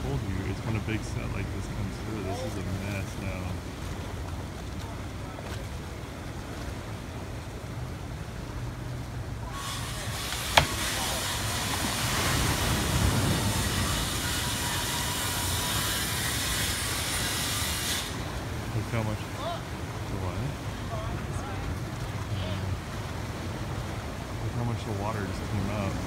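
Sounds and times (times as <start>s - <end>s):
rushing breaking water hiss: 0.0s - 3.6s, 9.4s - 21.6s
churning water rumble: 0.0s - 26.0s.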